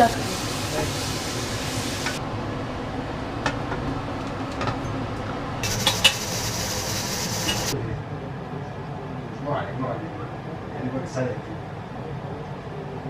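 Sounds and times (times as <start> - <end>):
high hiss: 0.0 - 2.2, 5.6 - 7.8
pots and utensils clinking: 5.6 - 7.8.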